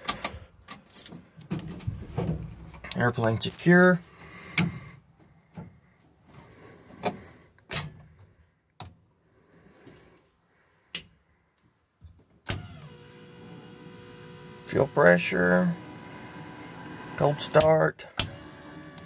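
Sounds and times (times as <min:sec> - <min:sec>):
electric fuel pump humming: 0:12.5 - 0:19.0.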